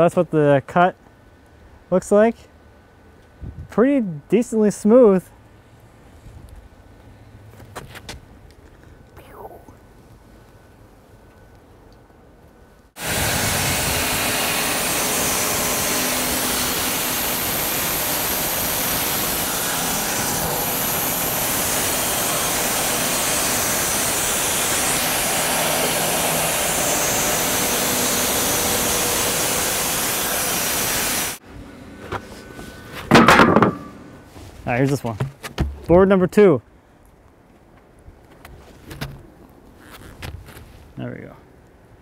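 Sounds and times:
band sawmill cutting log: 0:13.0 - 0:35.2.

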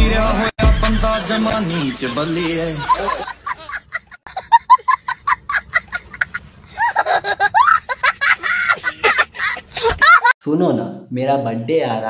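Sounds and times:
young child laughing: 0:02.9 - 0:10.3.

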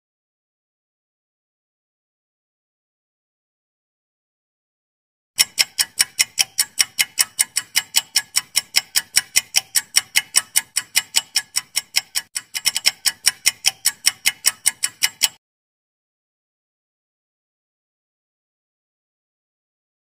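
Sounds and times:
clock ticking: 0:05.4 - 0:15.4.

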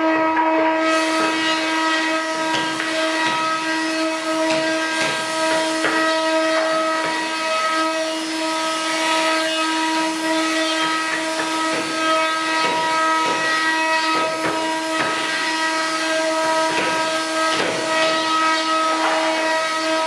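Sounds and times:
router spindles whining: 0:00.0 - 0:20.0
rasping wood cutting: 0:00.8 - 0:20.0.

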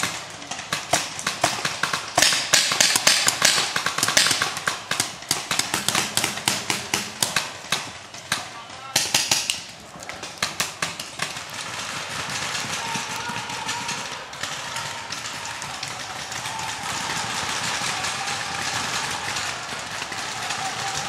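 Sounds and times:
distant paintball pops: 0:00.0 - 0:14.0
paintball markers popping: 0:08.9 - 0:11.6.

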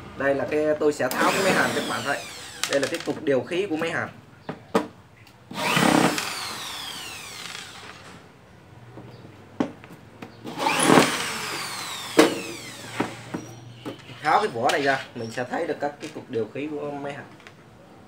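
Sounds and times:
cordless drill motor whine: 0:01.1 - 0:03.0, 0:05.5 - 0:08.1, 0:10.5 - 0:13.6.

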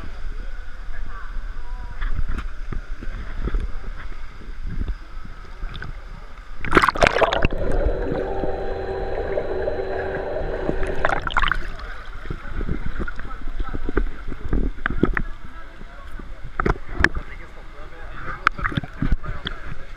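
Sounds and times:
steady underwater hum: 0:00.0 - 0:19.9
kayak splash: 0:06.6 - 0:12.0
underwater gurgling: 0:06.6 - 0:12.4.

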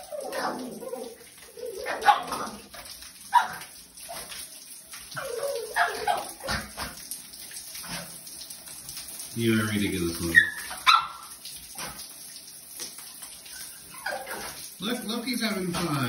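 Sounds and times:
shower water hissing: 0:00.0 - 0:16.0
puppy yipping and whimpering: 0:05.2 - 0:06.5, 0:10.4 - 0:11.3, 0:13.6 - 0:14.6.

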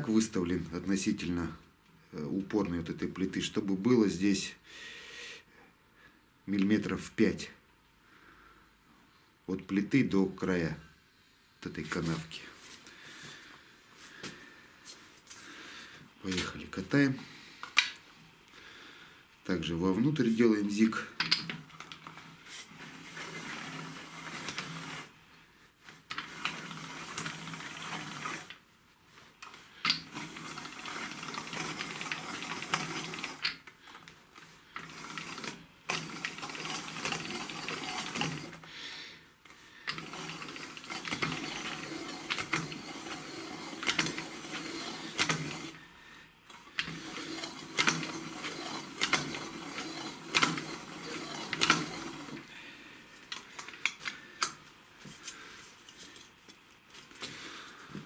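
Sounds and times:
bead-rolling machine rattling: 0:20.9 - 0:25.2, 0:26.0 - 0:28.6, 0:29.5 - 0:38.6, 0:39.8 - 0:45.8, 0:46.5 - 0:52.5
machine clicks: 0:34.8 - 0:38.6, 0:39.9 - 0:45.8, 0:46.7 - 0:52.5.

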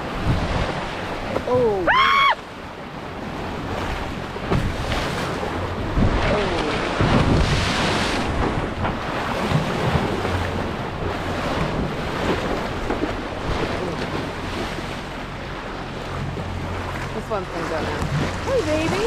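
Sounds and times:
sea water rushing and splashing: 0:00.0 - 0:19.0
wind buffeting microphone: 0:03.0 - 0:19.0.

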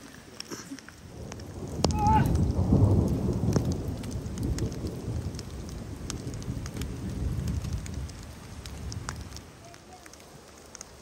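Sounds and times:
heavy rain falling: 0:00.0 - 0:11.0
raindrops tapping: 0:00.0 - 0:11.0.

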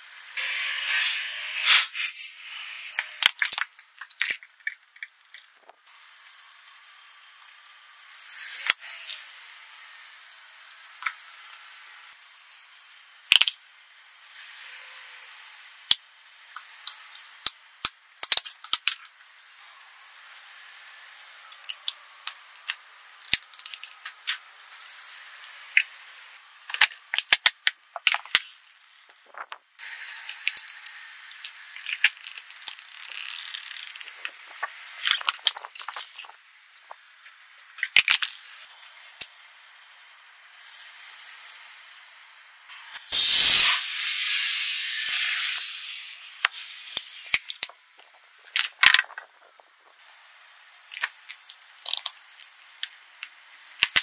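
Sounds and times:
thin gritty hiss: 0:00.4 - 0:03.3, 0:28.2 - 0:37.1, 0:42.8 - 0:47.7
tyre crushing plastic objects: 0:03.0 - 0:05.8, 0:22.6 - 0:24.4, 0:26.7 - 0:29.7, 0:30.3 - 0:37.0, 0:50.9 - 0:53.0, 0:53.7 - 0:54.0.

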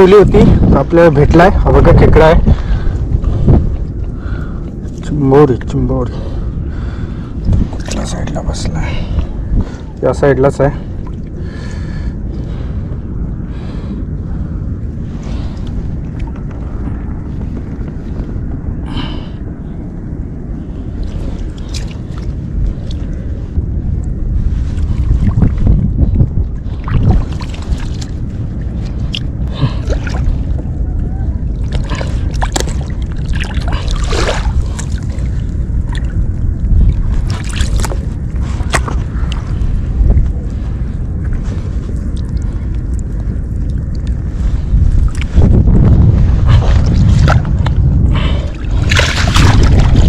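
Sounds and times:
wind rumbling on microphone: 0:00.0 - 0:50.0
hands squelching in mud: 0:48.8 - 0:50.0.

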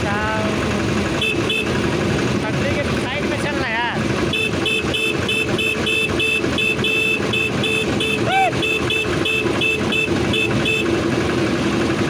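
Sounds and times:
motor trolley engine hum: 0:00.0 - 0:12.0
rapid two-tone beeping: 0:01.1 - 0:02.0, 0:04.2 - 0:11.1.

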